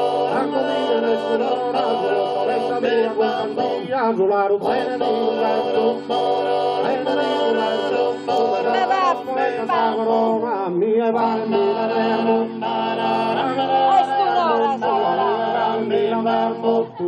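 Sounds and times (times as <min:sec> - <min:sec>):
male voices droning: 0:04.6 - 0:10.4, 0:11.2 - 0:17.0.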